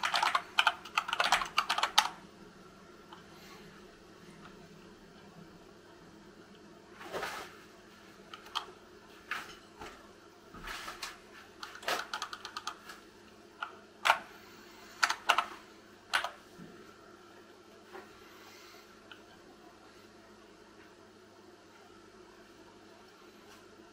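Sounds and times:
keyboard keystrokes clacking: 0.0 - 2.2, 11.6 - 12.8.

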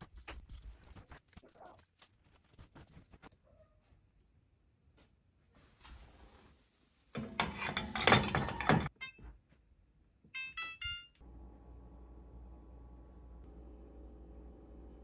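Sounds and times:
knocking and rattling handling: 7.2 - 8.9
oven keypad beeps: 10.4 - 11.1.

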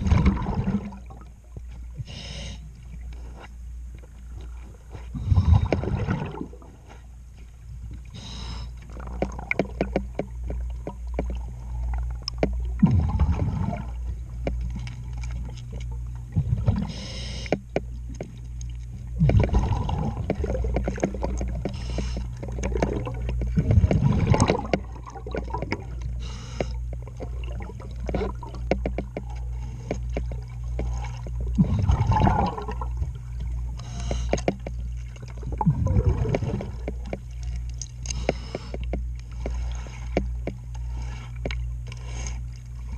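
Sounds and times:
underwater bubbles gurgling: 0.0 - 3.2, 4.2 - 6.9, 7.8 - 41.8
steady low hum: 0.0 - 42.9
scraping clicks on boat hull: 28.0 - 31.4, 33.8 - 34.8.

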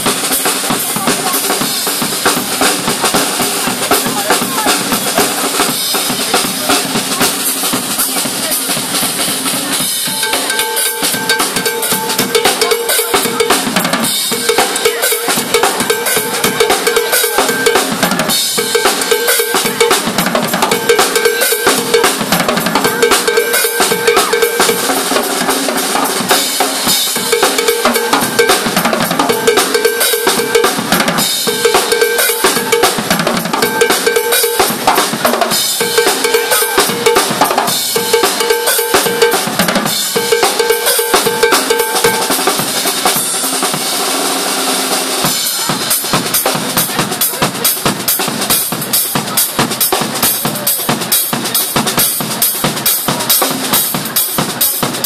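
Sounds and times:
drum kit played fast: 0.0 - 55.0.

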